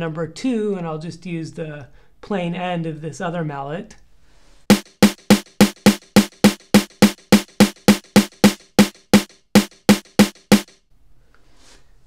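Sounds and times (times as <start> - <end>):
mallet tapping drum-like surface: 4.7 - 10.7.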